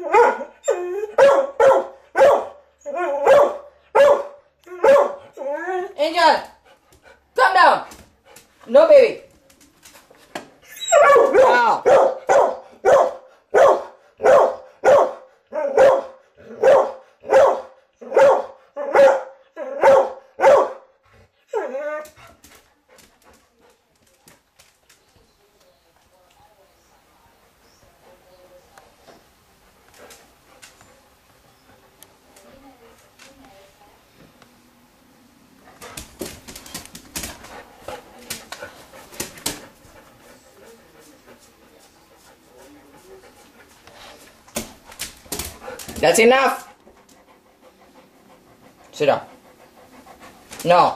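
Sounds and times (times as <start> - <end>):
dog barking: 0.0 - 0.5, 1.2 - 2.6, 3.2 - 5.2, 11.0 - 20.9
dog whining: 0.0 - 1.2, 10.6 - 11.4
dog whining and whimpering: 0.6 - 1.2, 4.7 - 6.0, 10.6 - 11.1.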